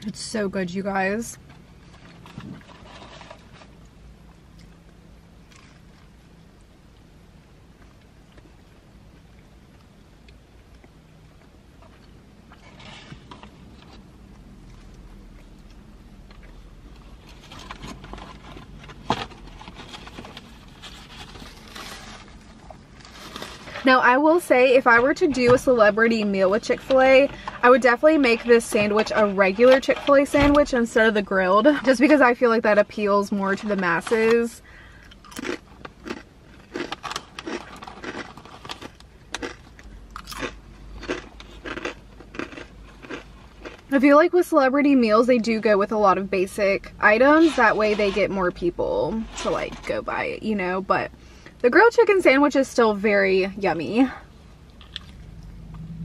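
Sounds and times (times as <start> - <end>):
low steady hum: 0.0 - 56.0
person chewing crunchy chips: 5.4 - 6.2, 34.9 - 43.9, 54.6 - 55.8
paper chip bag crinkling: 17.2 - 23.9, 35.2 - 39.6.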